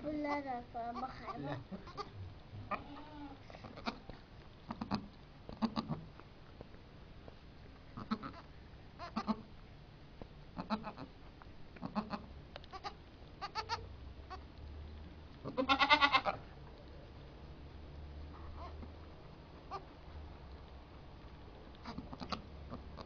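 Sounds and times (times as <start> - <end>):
goats bleating: 2.7 - 4.1, 15.5 - 16.3.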